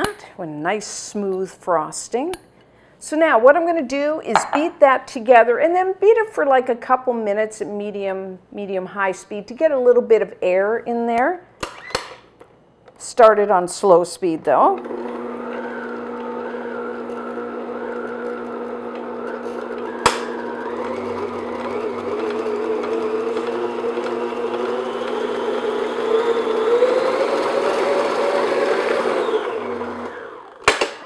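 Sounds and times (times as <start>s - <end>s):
stand mixer motor whining: 14.8s - 31.0s.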